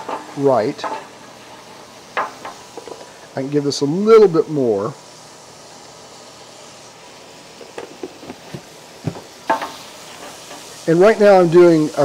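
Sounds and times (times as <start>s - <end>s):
roux sizzling in a roasting pan: 0.0s - 12.0s.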